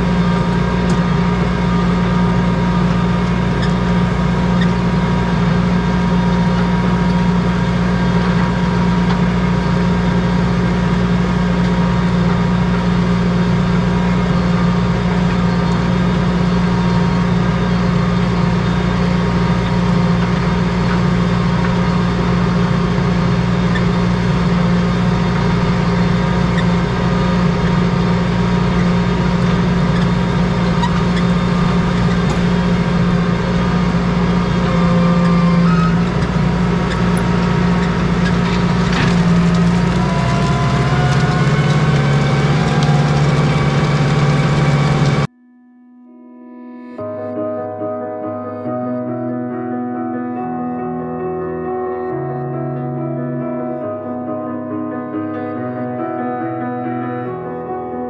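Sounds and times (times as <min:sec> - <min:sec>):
tractor engine running: 0:00.0 - 0:45.4.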